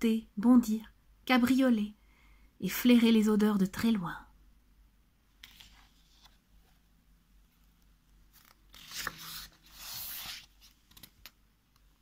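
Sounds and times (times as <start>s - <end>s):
paper page rustling: 5.4s - 6.4s, 8.3s - 11.4s.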